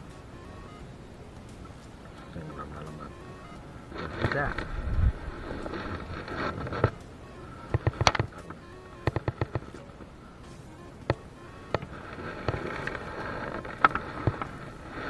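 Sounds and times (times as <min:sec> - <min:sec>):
prawn clicking: 0:00.0 - 0:15.0.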